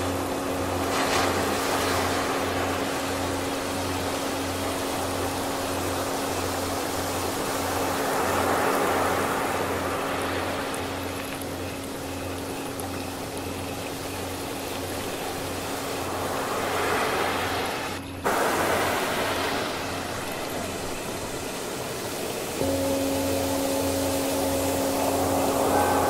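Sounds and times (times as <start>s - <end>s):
ocean surf washing in: 0.0s - 11.0s, 15.3s - 26.0s
low pulsing throb: 22.6s - 26.0s
low singing bowl tone: 22.6s - 26.0s.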